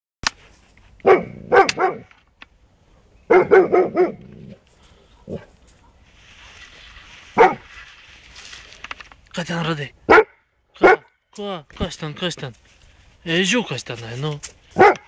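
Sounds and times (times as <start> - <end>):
dog barking: 1.0 - 2.1, 2.9 - 4.2, 5.1 - 6.0, 7.4 - 7.6, 10.1 - 11.1, 14.8 - 15.0.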